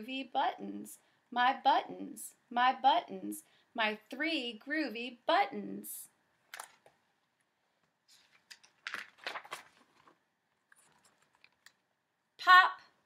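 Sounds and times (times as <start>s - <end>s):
book pages turning: 7.8s - 11.8s.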